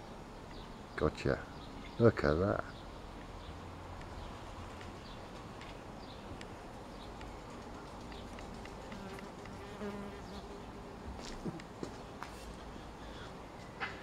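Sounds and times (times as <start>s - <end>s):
fly buzzing: 8.3s - 11.6s.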